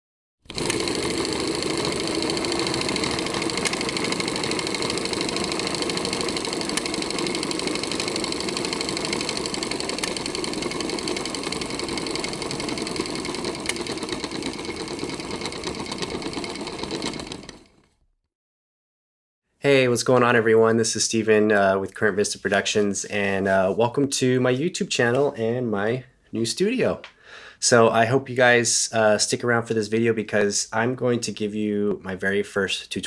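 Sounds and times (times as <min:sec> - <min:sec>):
film projector clatter: 0:00.5 - 0:17.8.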